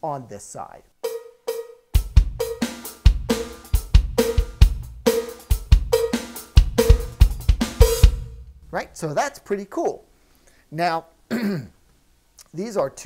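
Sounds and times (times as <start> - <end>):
electronic drum kit groove: 1.0 - 9.0.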